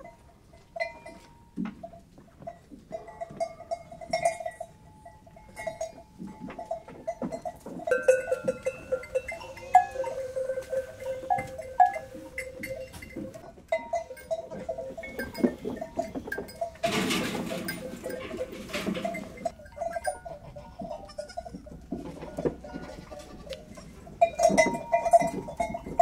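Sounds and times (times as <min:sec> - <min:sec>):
goat bell clanking: 0:00.0 - 0:26.0
goat bleating: 0:09.2 - 0:12.2, 0:20.2 - 0:21.6, 0:22.6 - 0:23.9.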